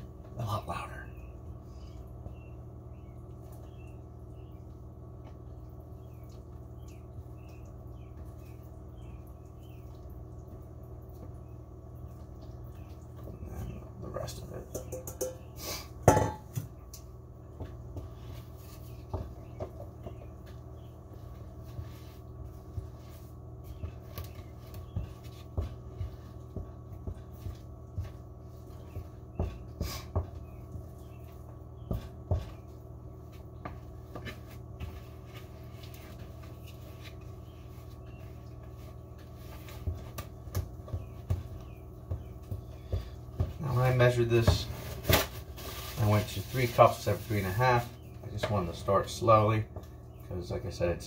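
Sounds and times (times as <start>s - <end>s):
wooden spoon scraping a bowl: 17.5s - 48.5s.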